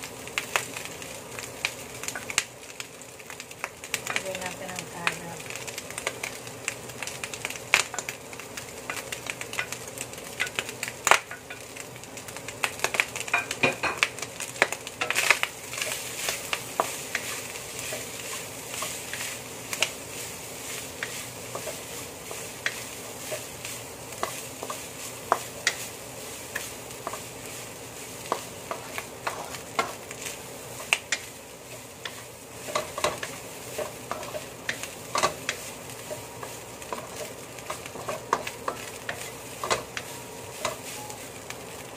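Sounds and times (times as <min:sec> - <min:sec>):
food sizzling in a wok: 0:00.0 - 0:41.9
wooden spatula scraping: 0:15.1 - 0:41.4.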